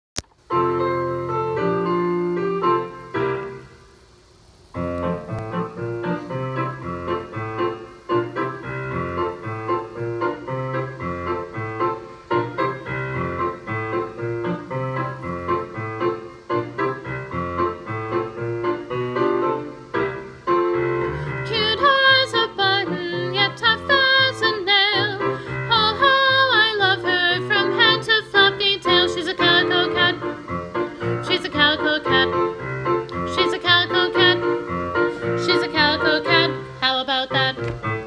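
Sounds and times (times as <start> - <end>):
piano chords: 0.2 - 4.1, 4.7 - 38.0
person singing with vibrato: 21.1 - 37.7.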